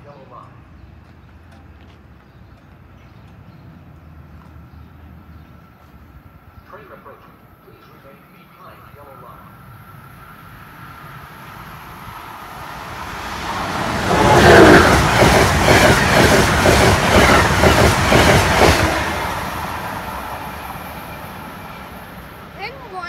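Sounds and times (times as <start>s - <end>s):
passenger train passing fast: 5.0s - 23.0s.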